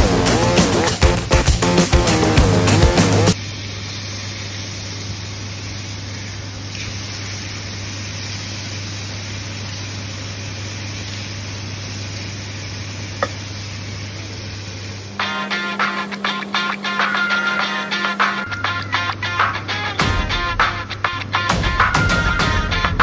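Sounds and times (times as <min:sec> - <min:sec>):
burger patties sizzling on grill pan: 0:03.4 - 0:15.2.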